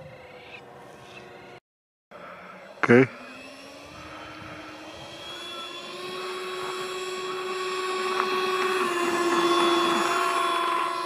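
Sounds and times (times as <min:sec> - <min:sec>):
electric ducted fans whining: 0:02.2 - 0:11.0.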